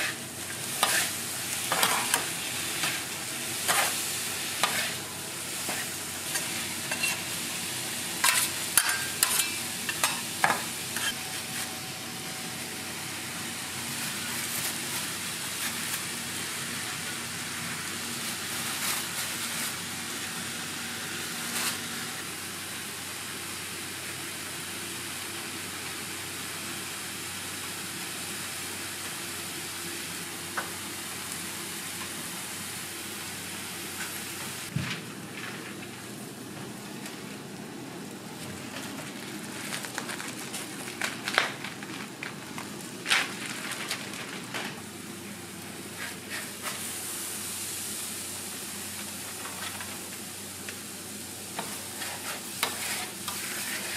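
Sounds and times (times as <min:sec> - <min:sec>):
metal spatulas scraping griddle: 0:00.0 - 0:04.0, 0:04.6 - 0:05.0, 0:05.6 - 0:07.3, 0:08.2 - 0:11.7, 0:51.6 - 0:53.9
food sizzling on a griddle: 0:00.0 - 0:34.8, 0:39.4 - 0:53.9.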